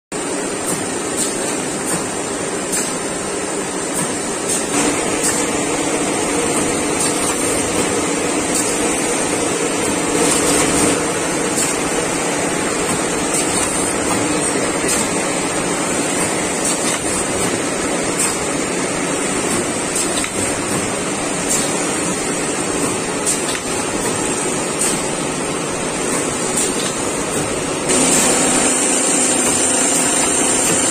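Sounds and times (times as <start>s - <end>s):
machinery mechanical din: 26.1s - 30.9s.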